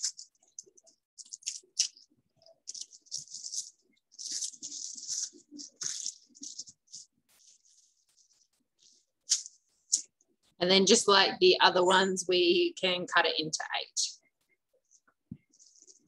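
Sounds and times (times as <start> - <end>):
plastic sheet crinkling: 0.0 - 10.1, 14.8 - 16.0.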